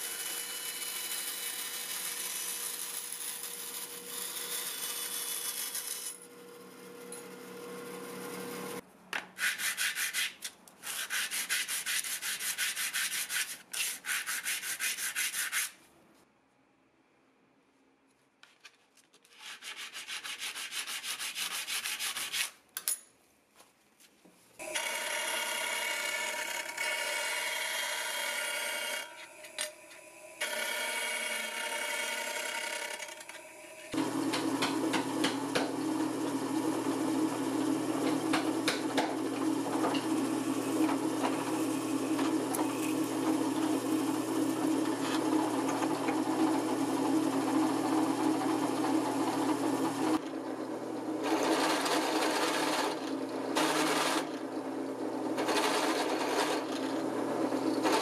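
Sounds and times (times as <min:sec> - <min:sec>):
disc sander grinding brass: 0:24.6 - 0:50.2
drill press motor hum: 0:24.6 - 0:58.0.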